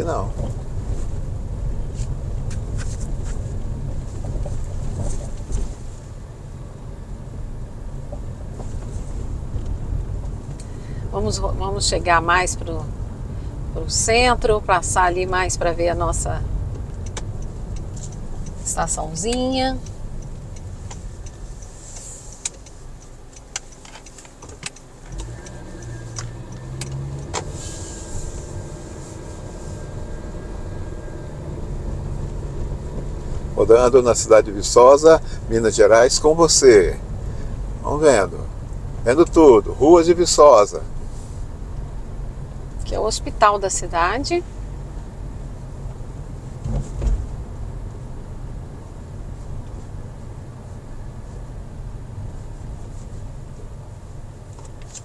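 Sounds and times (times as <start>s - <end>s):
car engine and road noise: 0.0s - 55.0s
sharp clicks: 17.0s - 18.6s, 19.3s - 27.5s.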